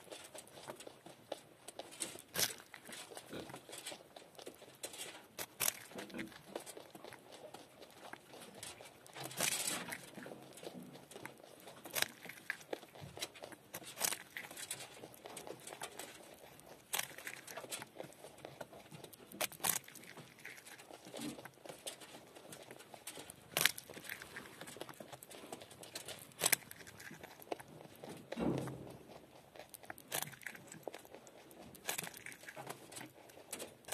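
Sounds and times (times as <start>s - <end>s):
rodent chewing carrot: 0.0s - 33.9s.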